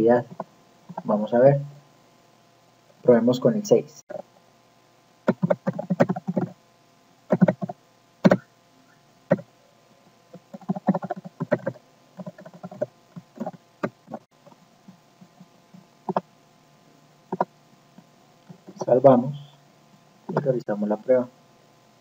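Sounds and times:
typing on keyboard: 5.3 - 6.6, 7.3 - 8.4, 10.4 - 14.2.

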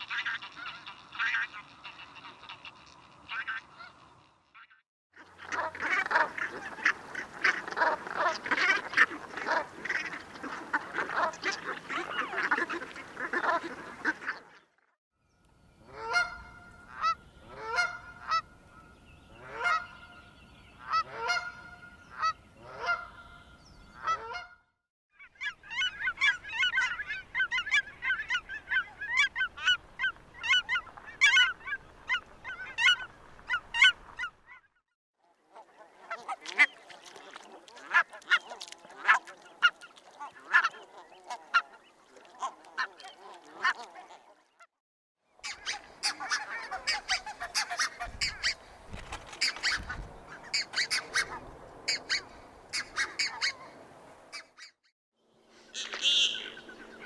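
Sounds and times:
geese yelping: 0.0 - 4.2, 5.3 - 14.5, 15.9 - 18.5, 19.4 - 20.1, 20.8 - 24.6, 25.3 - 34.6, 35.6 - 44.4, 45.4 - 48.7, 49.3 - 54.8, 55.7 - 57.0
goose honking: 0.0 - 4.7, 5.4 - 14.5, 15.9 - 18.5, 19.4 - 20.1, 20.8 - 23.4, 24.0 - 24.6, 25.4 - 34.3, 35.5 - 44.5, 45.4 - 48.6, 55.7 - 57.0
geese calling in chorus: 0.0 - 14.6, 15.9 - 18.5, 19.4 - 20.2, 20.8 - 24.6, 25.3 - 34.4, 35.5 - 44.5, 45.4 - 48.6, 49.4 - 54.7, 55.7 - 57.0.

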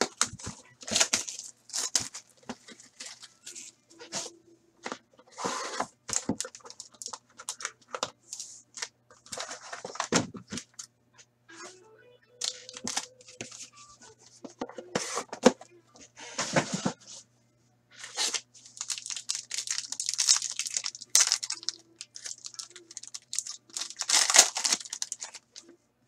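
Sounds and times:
plastic wrap crackling: 0.0 - 3.7, 18.2 - 25.6.

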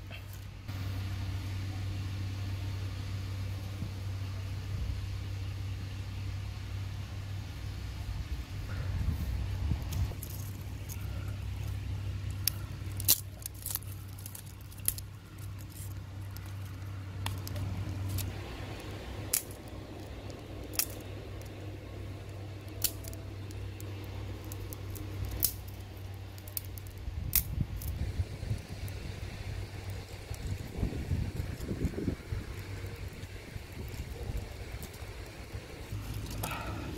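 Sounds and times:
low steady hum: 0.0 - 36.9
twigs crackling in fire: 8.4 - 36.9.

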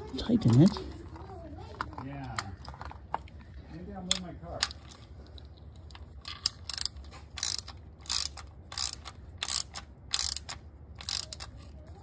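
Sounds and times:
socket ratchet clicking: 6.3 - 11.6.

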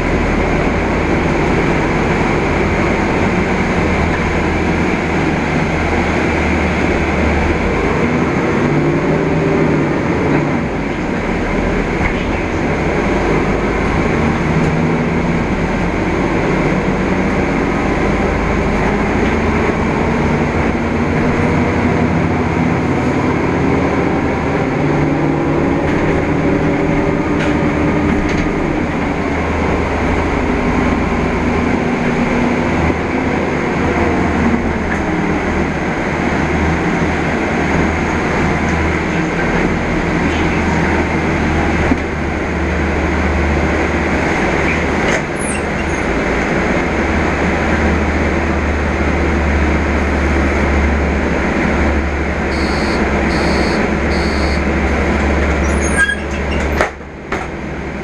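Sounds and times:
bus engine drone: 0.0 - 58.0
road and cabin noise: 0.0 - 58.0
faint high beeps: 52.5 - 54.6.

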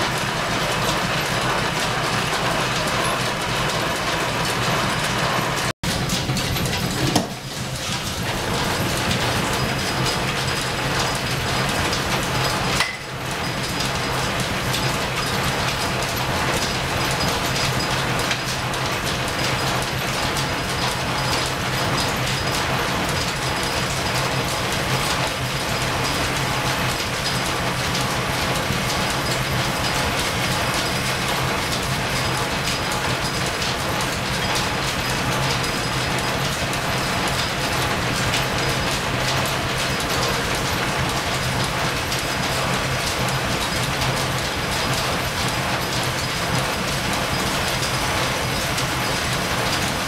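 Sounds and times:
clatter of gears and belts: 0.0 - 50.0.

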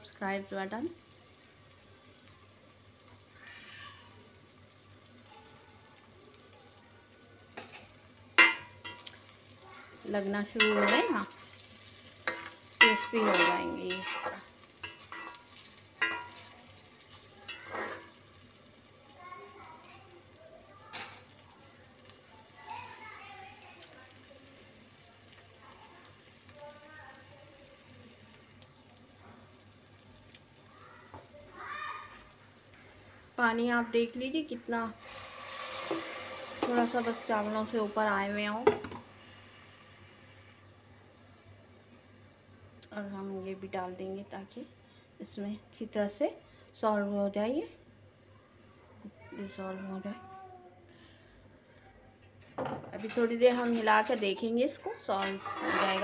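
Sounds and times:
faint sizzling of rice in a pot: 0.0 - 56.0
metal spatula knocking on pot: 38.6 - 39.0.

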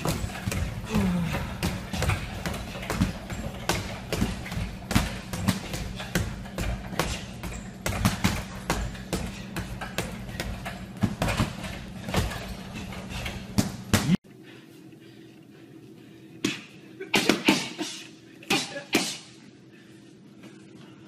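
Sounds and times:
boxing gloves hitting punching bags: 0.0 - 14.2.

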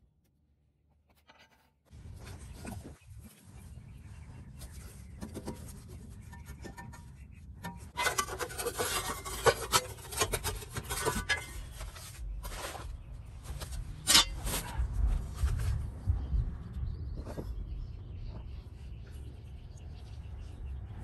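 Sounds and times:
gloved hand scraping rubber: 1.1 - 15.8.

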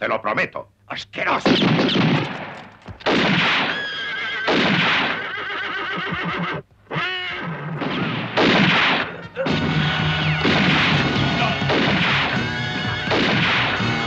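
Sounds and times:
gunfire sound effects: 1.4 - 3.8, 4.5 - 5.2, 7.8 - 12.5, 13.1 - 14.0
soundtrack music: 9.4 - 14.0.

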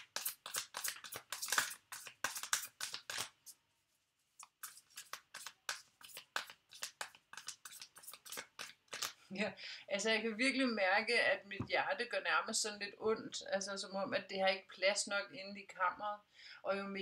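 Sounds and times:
cards being shuffled: 0.0 - 3.6, 4.2 - 9.2.

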